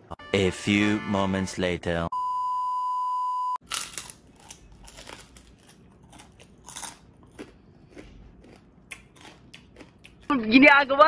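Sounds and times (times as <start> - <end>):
crunchy food being chewed: 3.6 - 10.3.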